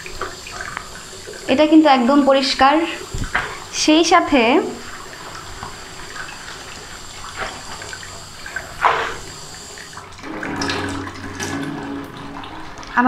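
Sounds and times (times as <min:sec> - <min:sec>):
tap running into metal sink: 0:10.2 - 0:13.0.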